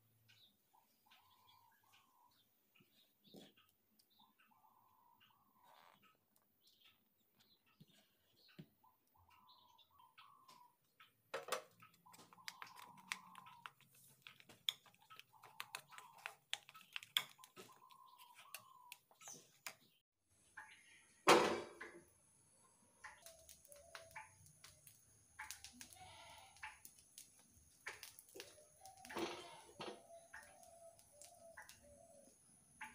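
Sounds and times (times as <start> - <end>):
bird calling: 8.5 - 20.0, 23.0 - 32.9.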